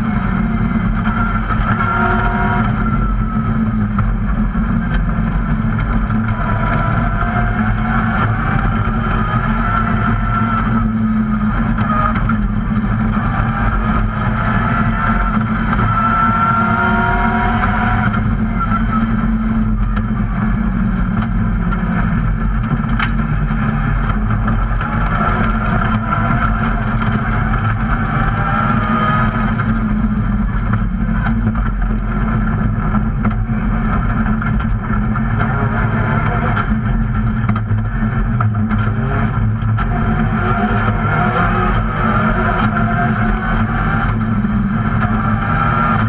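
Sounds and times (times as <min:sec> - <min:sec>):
rally car engine revving: 0:00.0 - 0:46.0.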